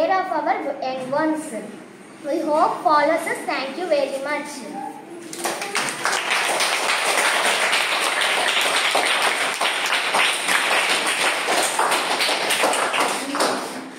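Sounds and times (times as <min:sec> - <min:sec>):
children applauding: 0:05.3 - 0:13.9.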